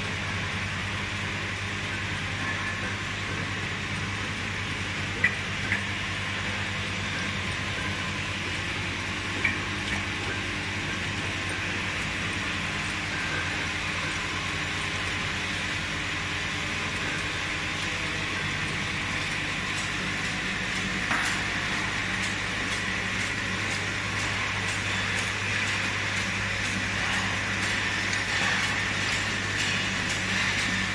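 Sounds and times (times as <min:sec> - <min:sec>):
bottling machine hum and hiss: 0:00.0 - 0:30.9
light machine ticks: 0:18.6 - 0:30.9.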